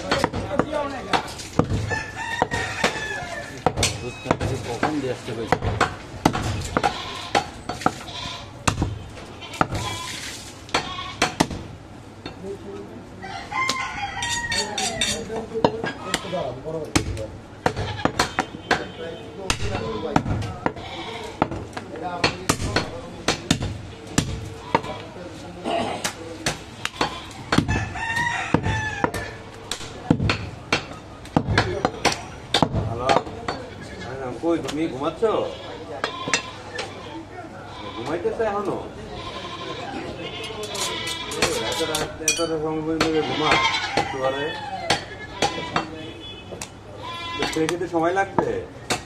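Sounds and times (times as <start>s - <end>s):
cleaver chopping meat on wood: 0.0s - 9.9s, 10.7s - 11.7s, 16.9s - 18.9s, 19.5s - 20.8s, 21.4s - 24.9s, 26.0s - 33.6s, 41.3s - 42.0s, 43.0s - 44.2s, 44.8s - 45.9s, 47.4s - 49.0s
rooster crowing: 1.9s - 3.7s, 13.2s - 15.2s, 27.7s - 29.6s, 43.4s - 45.1s.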